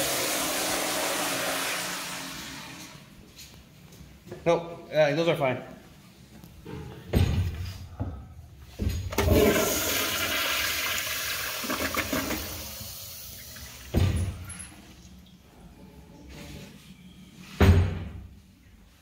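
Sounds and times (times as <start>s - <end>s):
toilet flush water rushing: 0.0s - 3.0s, 9.1s - 14.2s
thump: 17.6s - 18.2s.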